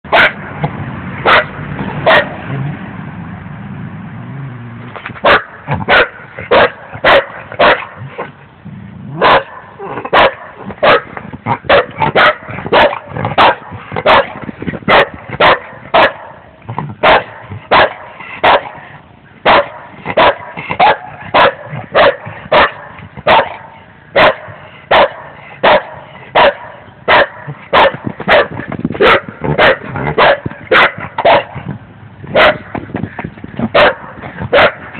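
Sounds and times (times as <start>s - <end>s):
dog barking: 0.1s - 0.4s, 1.3s - 2.3s, 5.2s - 8.0s, 9.2s - 16.4s, 17.0s - 18.8s, 19.4s - 31.6s, 32.4s - 32.7s, 33.7s - 34.9s.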